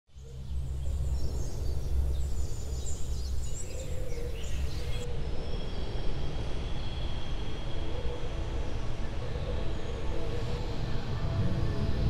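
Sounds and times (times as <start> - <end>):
birds chirping: 0.1 - 5.1.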